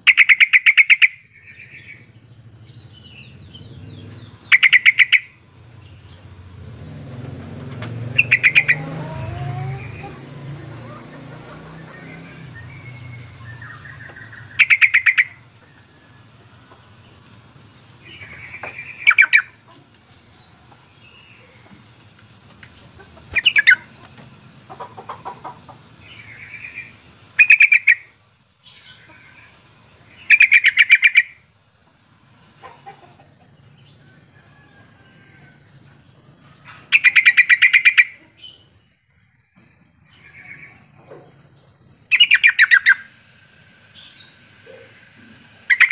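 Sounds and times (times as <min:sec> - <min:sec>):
bird bubbly chattering calls: 0:00.0 - 0:01.9, 0:04.4 - 0:05.4, 0:08.2 - 0:15.5, 0:18.0 - 0:19.7, 0:22.8 - 0:29.5, 0:30.1 - 0:31.4, 0:36.9 - 0:38.6, 0:42.1 - 0:43.2, 0:43.9 - 0:45.9
soft bird chirps: 0:00.0 - 0:06.9, 0:07.6 - 0:25.4, 0:26.0 - 0:45.9.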